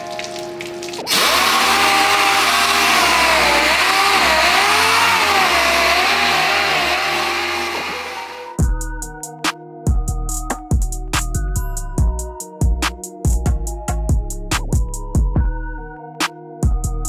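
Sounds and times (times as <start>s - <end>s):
pneumatic sander hissing and whining: 1.1s - 8.6s.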